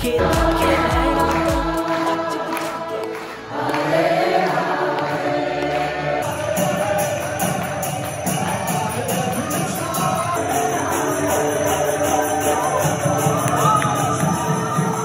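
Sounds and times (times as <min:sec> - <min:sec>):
crowd chanting: 0:00.0 - 0:15.0
group singing over music: 0:00.0 - 0:15.0
jingling percussion beat: 0:06.1 - 0:15.0.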